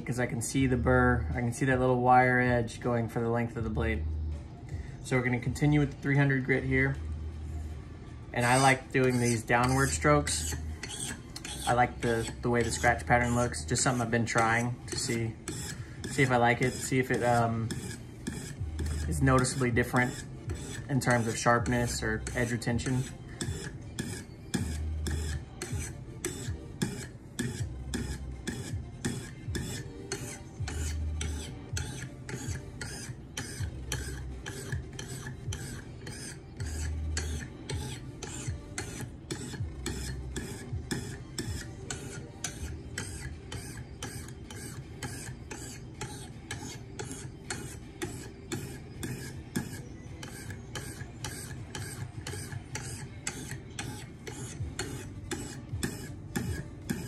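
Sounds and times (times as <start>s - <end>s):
sharpening stone scraping knife edge: 8.4s - 57.0s.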